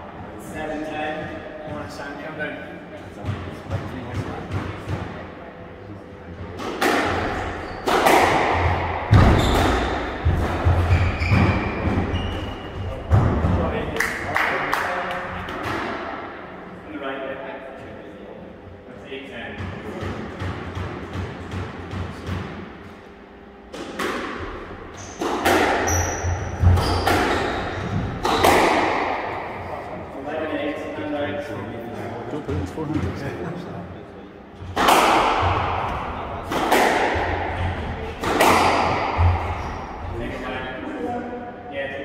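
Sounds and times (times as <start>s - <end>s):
squash ball echoing cracks: 6.5s - 16.6s, 23.7s - 30.0s, 34.6s - 40.3s
shoes squeaking: 7.5s - 8.0s, 9.3s - 10.0s, 10.7s - 13.0s, 25.8s - 28.5s.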